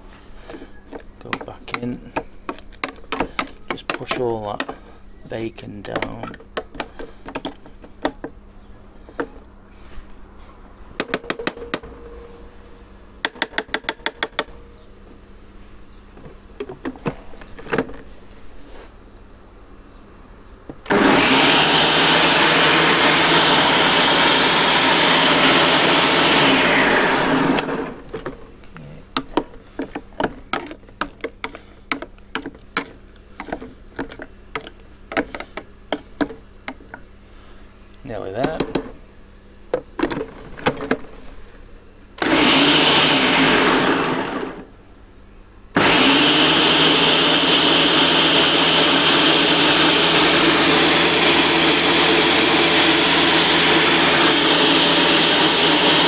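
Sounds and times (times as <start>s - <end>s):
blender motor running: 20.9s - 28.1s, 42.2s - 44.7s, 45.8s - 56.0s.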